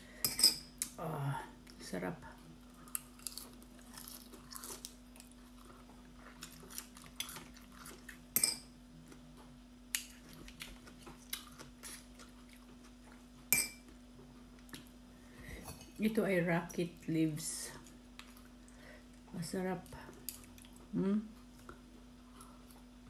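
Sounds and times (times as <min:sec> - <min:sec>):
steady low hum: 0:00.0 - 0:23.0
chewing: 0:02.7 - 0:08.3, 0:09.0 - 0:13.3.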